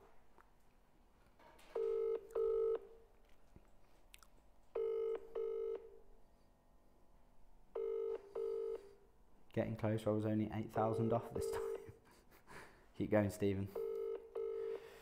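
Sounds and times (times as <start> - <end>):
telephone ringing tone: 1.8 - 2.8, 4.8 - 5.9, 7.8 - 8.9, 13.8 - 14.9.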